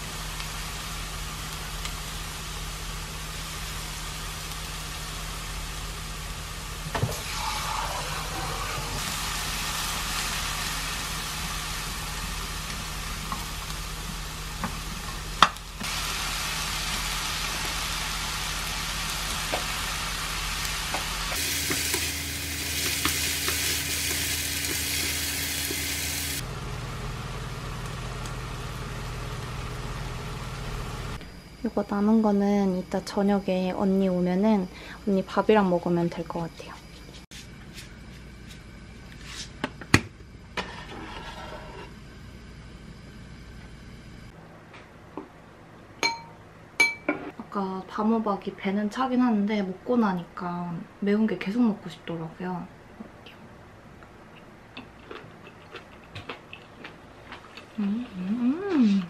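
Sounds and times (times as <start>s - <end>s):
food sizzling in frying pan: 0.0s - 31.4s
low hum: 0.0s - 44.8s.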